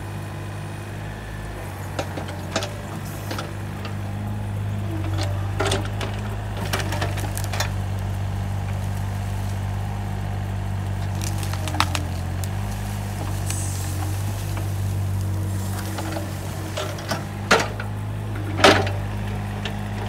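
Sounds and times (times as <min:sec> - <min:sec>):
excavator diesel engine: 0:00.0 - 0:20.0
roots and branches cracking: 0:05.0 - 0:20.0.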